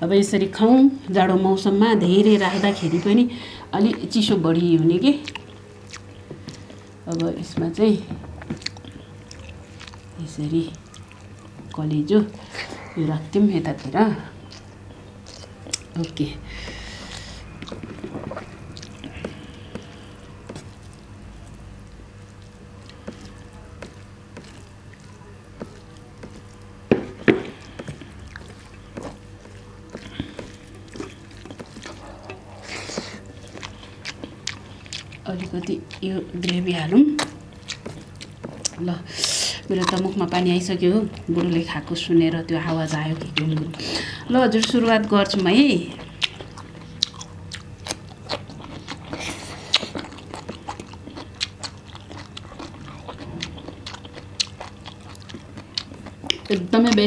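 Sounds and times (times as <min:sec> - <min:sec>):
chewing crunchy cucumber: 0:04.8 - 0:12.9, 0:13.7 - 0:57.0
hands squelching rice and gravy: 0:14.5 - 0:39.0.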